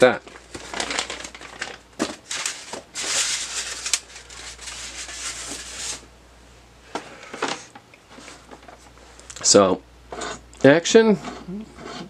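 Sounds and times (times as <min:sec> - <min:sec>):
cardboard and styrofoam rustling: 0:00.0 - 0:06.1.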